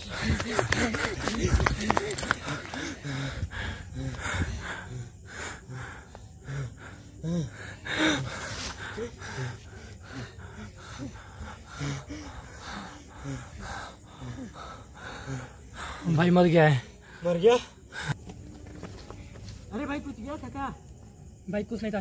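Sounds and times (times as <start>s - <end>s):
person gasping and breathing hard: 0.0s - 16.0s.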